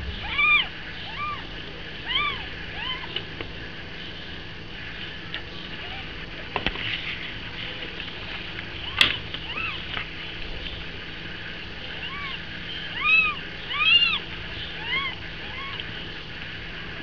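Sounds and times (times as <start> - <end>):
kittens mewing: 0.0 - 3.2, 8.8 - 9.9, 11.8 - 16.0.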